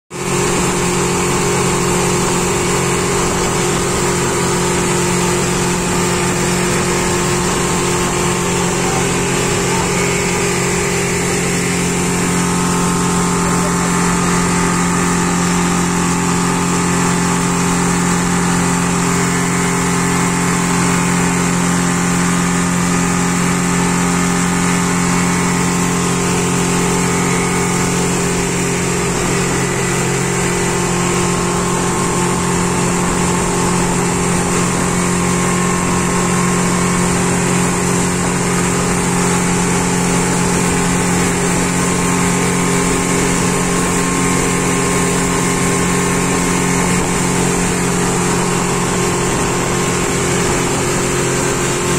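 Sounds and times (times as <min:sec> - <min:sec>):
outboard motor running: 0:00.1 - 0:51.9
water spray rushing: 0:00.1 - 0:51.9.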